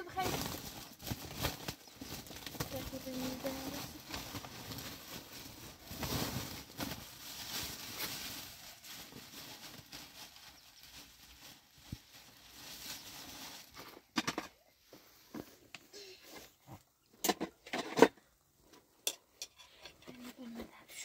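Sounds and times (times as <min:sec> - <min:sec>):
plastic sheeting and sack rustling: 0:00.0 - 0:16.2.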